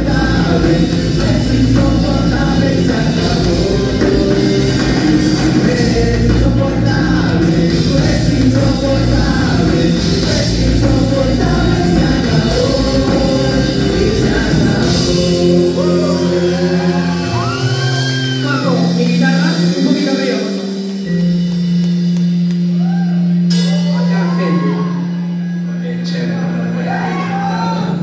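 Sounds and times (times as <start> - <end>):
person singing: 0.0 - 21.0
live rock band playing: 0.0 - 28.0.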